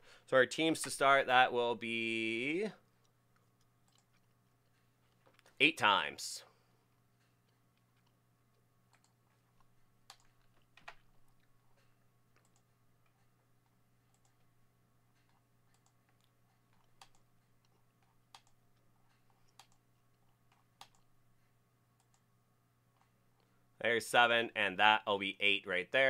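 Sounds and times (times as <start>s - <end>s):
low electrical hum: 0.0s - 26.0s
faint computer clicks: 12.3s - 13.2s, 15.1s - 19.8s.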